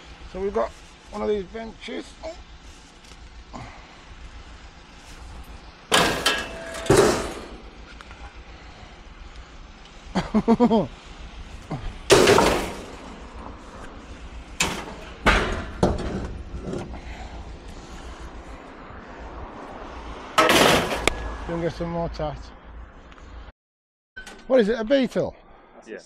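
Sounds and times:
scrap metal banging and clanking: 0:05.9 - 0:07.9, 0:12.1 - 0:13.4, 0:14.5 - 0:17.2, 0:20.3 - 0:21.2.

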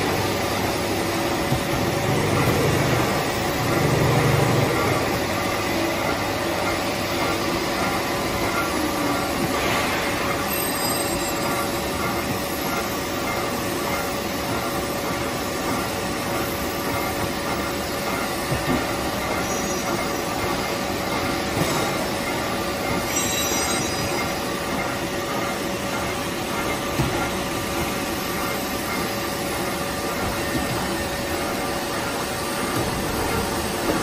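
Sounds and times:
machine hum: 0:00.0 - 0:10.6
machine conveyor and rollers running: 0:00.0 - 0:34.0.

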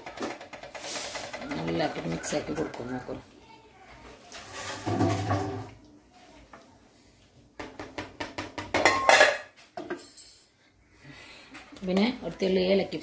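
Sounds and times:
wooden spatula knocking on metal pot: 0:07.6 - 0:09.1.

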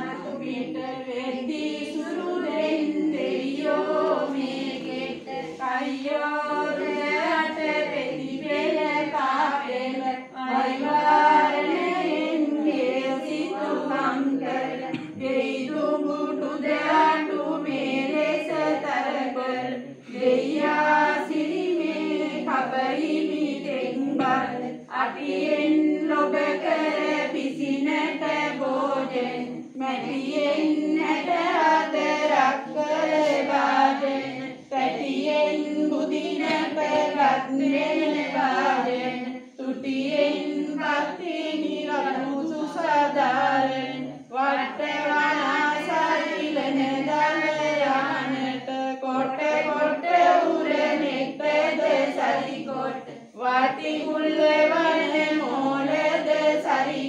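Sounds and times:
women chanting in unison: 0:00.0 - 0:57.0.

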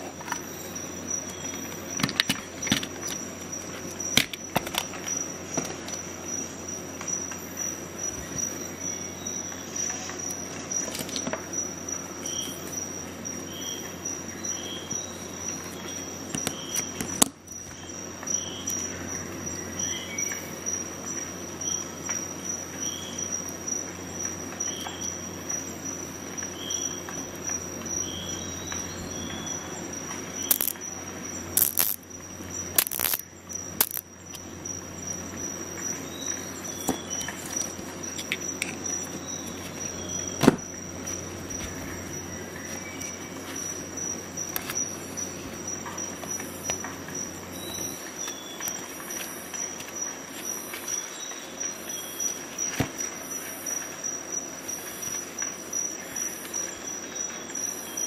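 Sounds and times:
metal accessories clicking: 0:30.5 - 0:30.8, 0:31.6 - 0:32.0, 0:32.8 - 0:33.2, 0:33.8 - 0:34.0.

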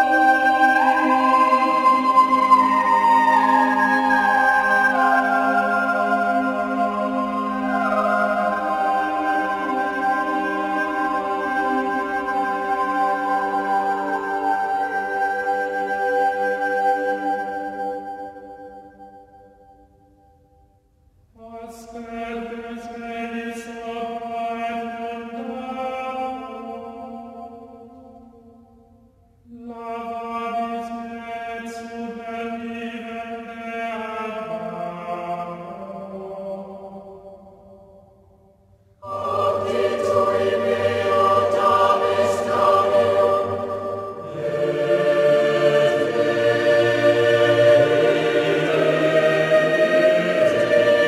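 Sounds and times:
choir singing: 0:00.0 - 0:19.6, 0:21.4 - 0:27.8, 0:29.6 - 0:37.5, 0:39.0 - 0:51.0
voices chanting long notes: 0:00.0 - 0:19.7, 0:39.0 - 0:51.0
drone: 0:39.0 - 0:51.0
held chord: 0:39.0 - 0:51.0.

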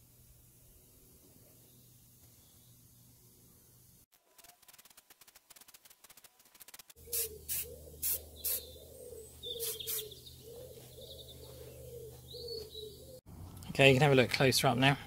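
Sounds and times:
spray paint can bursts: 0:04.2 - 0:08.7, 0:09.5 - 0:10.2.

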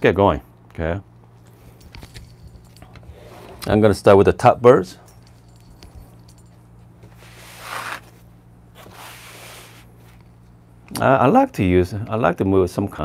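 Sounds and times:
low electrical hum: 0:00.0 - 0:13.0
cloth rustling: 0:05.1 - 0:10.4.

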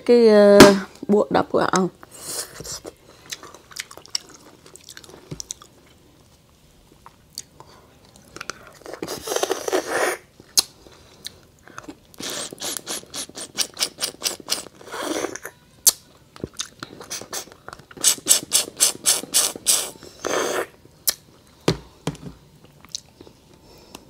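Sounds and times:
sucking and slurping: 0:12.2 - 0:15.5, 0:16.9 - 0:20.8.

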